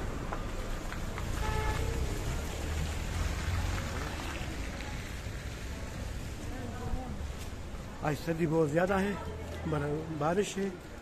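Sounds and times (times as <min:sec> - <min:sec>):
rain hiss: 0:00.0 - 0:08.2
low street rumble: 0:00.0 - 0:11.0.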